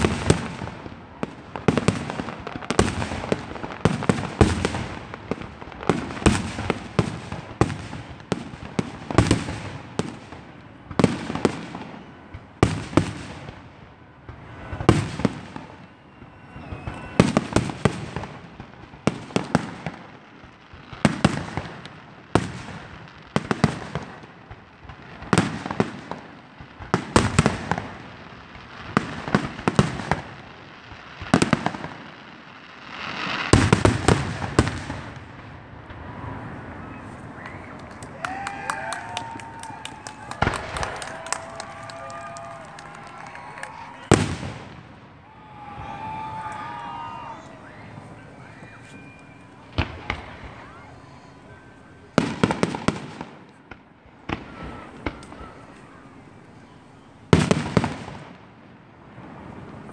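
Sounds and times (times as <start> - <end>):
crackling firework pops: 14.2 - 32.0, 37.1 - 44.9, 48.5 - 51.3, 52.2 - 56.0.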